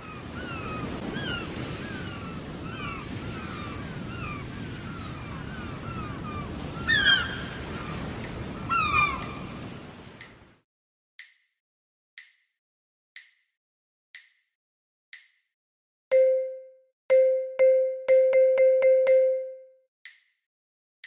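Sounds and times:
gulls calling: 0:00.0 - 0:09.9
surf washing: 0:00.0 - 0:10.6.

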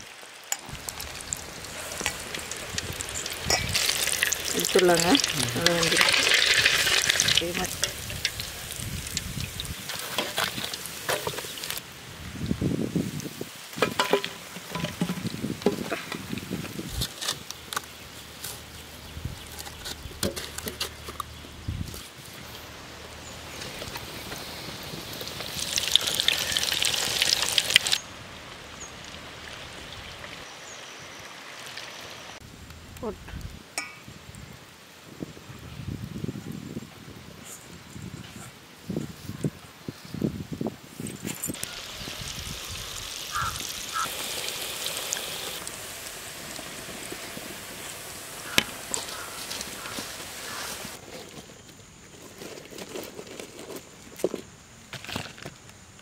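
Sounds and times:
fish deep-frying in oil: 0:00.1 - 0:11.8, 0:23.6 - 0:28.0, 0:41.5 - 0:51.0.

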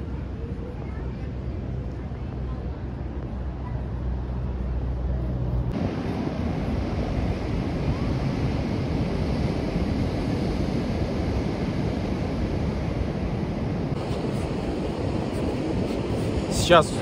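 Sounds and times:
wind buffeting microphone: 0:00.0 - 0:17.0
ocean surf washing: 0:05.7 - 0:17.0.

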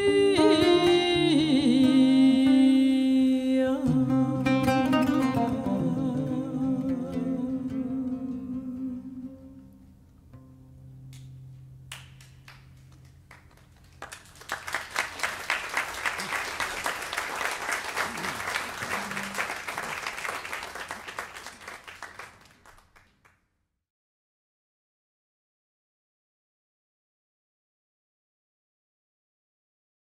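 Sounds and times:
audience applause: 0:12.5 - 0:23.2.

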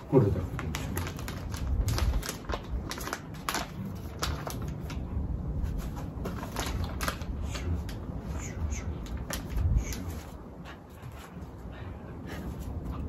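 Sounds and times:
plastic pouch crinkling: 0:00.2 - 0:05.0, 0:05.8 - 0:07.9.

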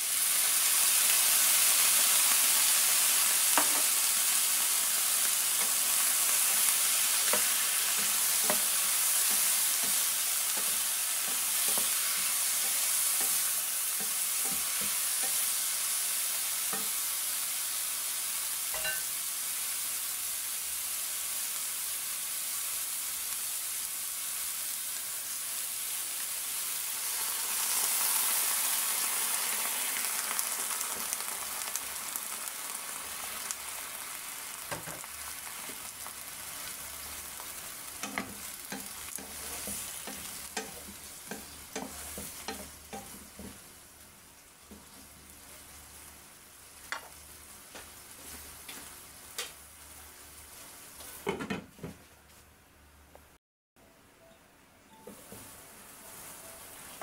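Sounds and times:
vegetables sizzling in hot oil: 0:00.0 - 0:51.9, 0:55.0 - 0:57.0
wooden spatula knocking and scraping: 0:38.0 - 0:43.6.

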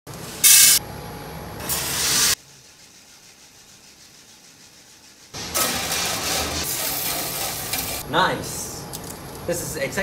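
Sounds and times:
coffee beans poured into metal hopper: 0:05.5 - 0:08.0.

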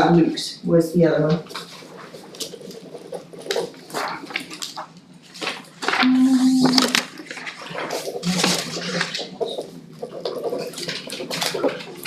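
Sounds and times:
paper rustling: 0:01.4 - 0:12.0.

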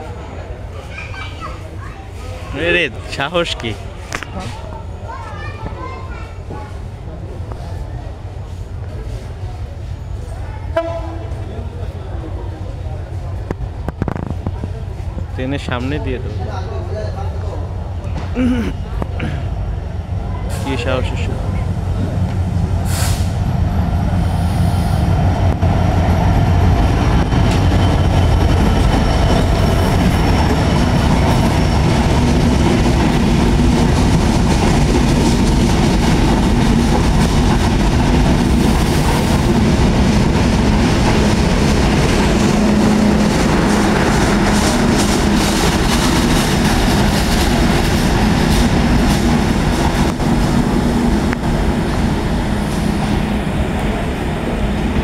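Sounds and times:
train rumbling past: 0:00.0 - 0:55.0
wheels clacking over rail joints: 0:26.9 - 0:52.1.

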